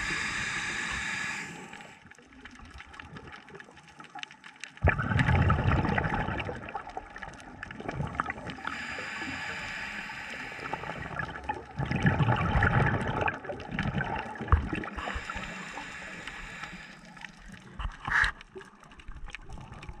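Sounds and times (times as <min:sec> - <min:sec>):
steady hiss: 0:00.0 - 0:02.0, 0:08.6 - 0:11.2, 0:15.0 - 0:17.4
underwater gurgling bubbles: 0:00.0 - 0:20.0.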